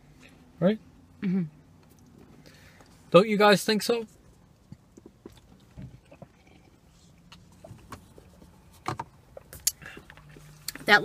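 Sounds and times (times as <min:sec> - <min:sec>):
sipping and swallowing: 0:04.5 - 0:08.4.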